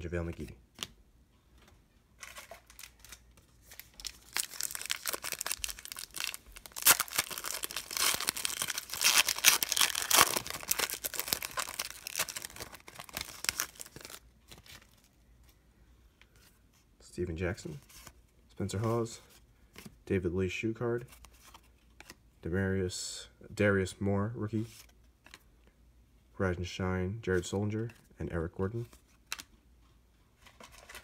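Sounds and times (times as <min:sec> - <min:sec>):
foil wrapper crinkling and tearing: 0:02.2 - 0:15.0.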